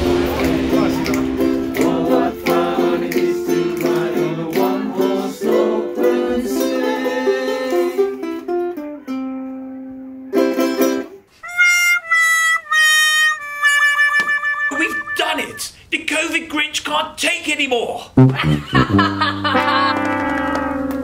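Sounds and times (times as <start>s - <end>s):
ukulele strumming chords: 0.0s - 11.2s, 18.2s - 20.9s.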